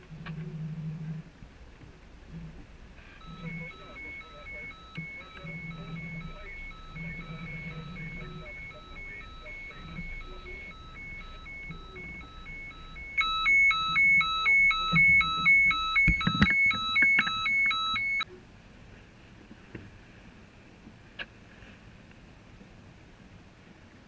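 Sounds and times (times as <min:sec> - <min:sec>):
electronic alarm beeping and warbling: 0:03.2 - 0:18.2.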